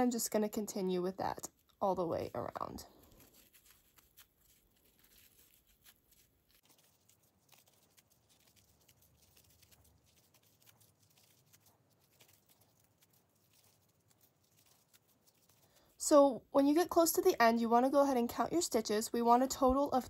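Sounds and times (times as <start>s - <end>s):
yarn rustling: 1.4s - 16.1s.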